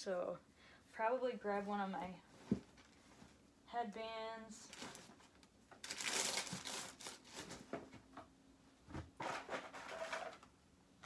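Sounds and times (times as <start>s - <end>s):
items crinkling and rustling: 2.2s - 3.5s, 4.6s - 10.6s.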